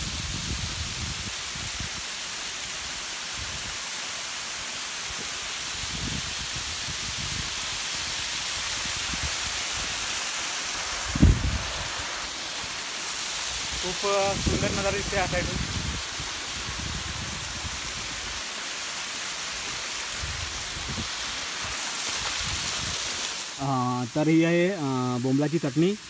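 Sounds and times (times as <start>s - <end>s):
waterfall splashing on rock: 0.0s - 26.0s.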